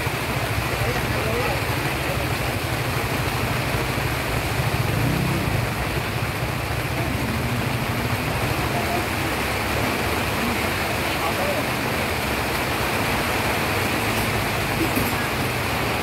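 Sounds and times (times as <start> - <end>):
heavy rain falling: 0.0 - 16.0.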